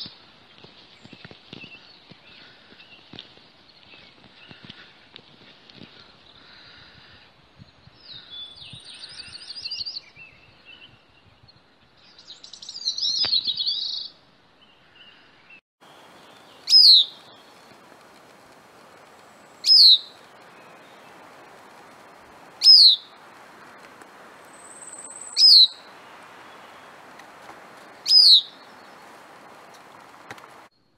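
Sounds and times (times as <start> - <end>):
sharp falling bird calls: 15.2 - 30.7
thrush singing trills: 15.8 - 30.7.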